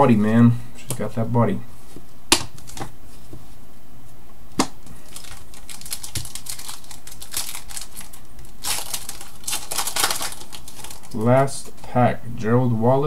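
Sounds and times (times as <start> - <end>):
foil wrapper crinkling: 5.0 - 11.7.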